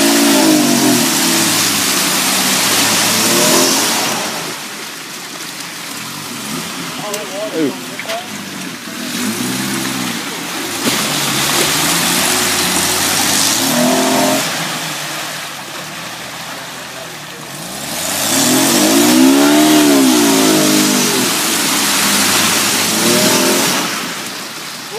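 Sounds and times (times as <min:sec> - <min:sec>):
engine revving hard: 0:00.0 - 0:04.6, 0:08.3 - 0:15.1, 0:17.5 - 0:24.4
tyres spinning in mud: 0:00.0 - 0:24.9.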